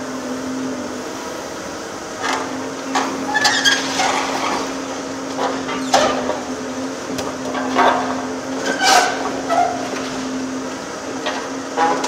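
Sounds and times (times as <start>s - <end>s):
excavator hum: 0.0s - 12.0s
demolition shear crunching steel: 2.2s - 12.0s
metallic squeals: 8.6s - 10.0s.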